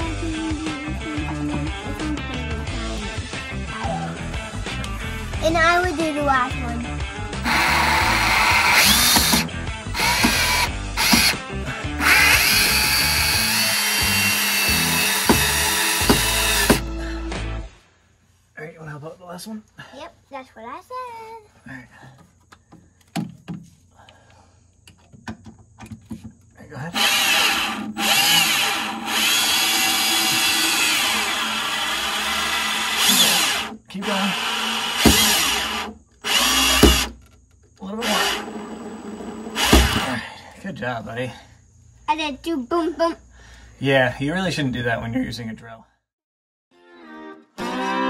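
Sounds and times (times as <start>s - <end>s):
cordless drill motor whine: 7.4s - 11.4s, 12.0s - 16.9s, 27.0s - 37.2s, 37.8s - 40.2s.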